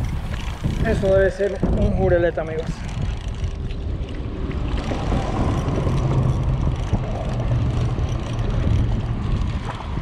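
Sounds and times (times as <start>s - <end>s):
wind rumble on microphone: 0.0s - 10.0s
low motor hum: 2.9s - 10.0s.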